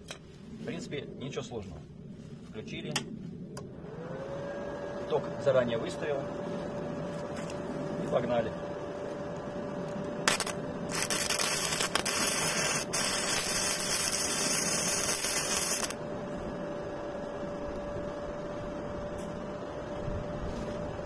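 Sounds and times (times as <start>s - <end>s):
faint steady hum: 0.0s - 21.0s
welding arc crackling: 10.2s - 16.0s.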